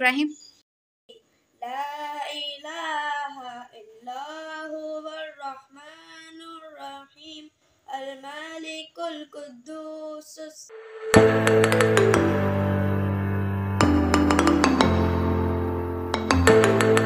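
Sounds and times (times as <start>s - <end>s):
boy singing unaccompanied: 1.6s - 10.7s.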